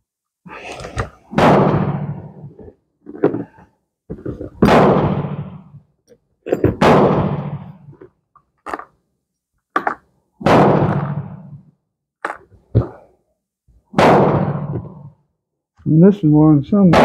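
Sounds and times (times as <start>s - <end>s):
gunshots ringing: 1.3s - 2.5s, 4.6s - 5.8s, 6.7s - 7.9s, 10.4s - 11.6s, 13.9s - 15.2s.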